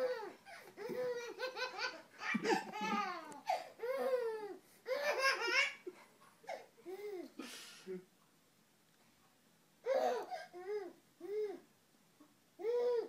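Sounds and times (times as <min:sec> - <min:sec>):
baby laughing: 0:00.0 - 0:07.2.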